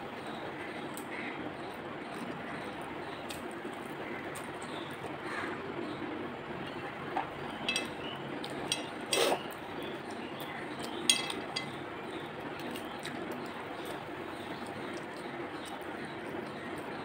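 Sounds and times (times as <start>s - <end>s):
fingers clinking on a plate: 7.6s - 9.3s, 10.8s - 11.8s.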